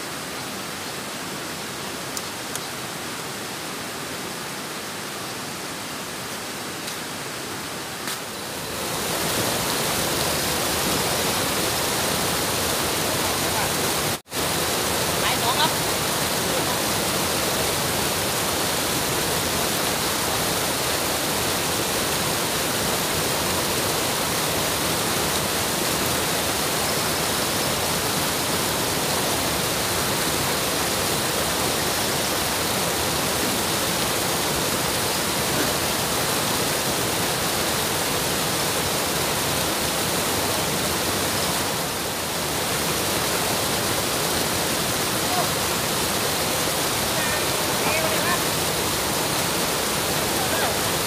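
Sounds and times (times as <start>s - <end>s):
water rushing over a weir: 0.0s - 51.0s.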